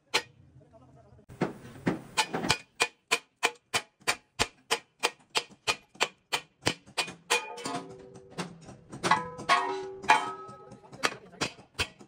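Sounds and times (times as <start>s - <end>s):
hammer striking steel: 0.0s - 0.3s, 2.1s - 12.0s.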